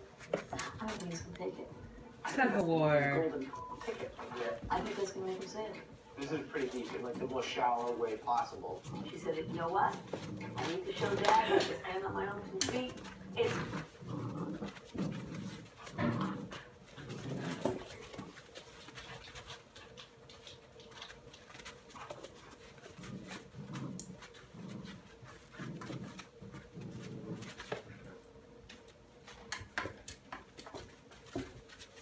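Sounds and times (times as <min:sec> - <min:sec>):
paws scuffling and clicking: 0:00.0 - 0:32.0
puppies growling: 0:05.7 - 0:28.6.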